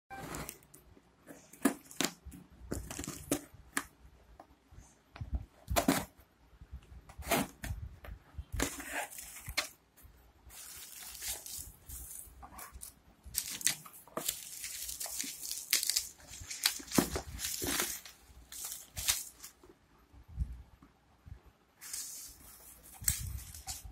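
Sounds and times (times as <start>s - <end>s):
bubble wrap crinkling: 1.4s - 3.5s, 10.5s - 19.7s, 21.8s - 23.9s
cardboard scraping and rustling: 7.1s - 7.8s, 8.5s - 9.8s, 10.5s - 19.6s
packing tape tearing: 10.6s - 19.5s.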